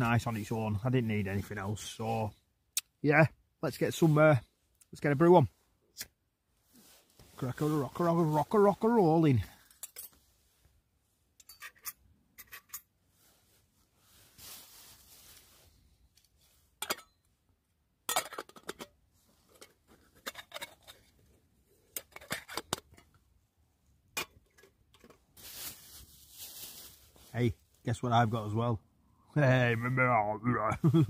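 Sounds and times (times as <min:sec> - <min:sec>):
metal pans and utensils clinking: 0:16.8 - 0:17.2, 0:18.1 - 0:18.9, 0:19.6 - 0:21.1, 0:22.0 - 0:23.0.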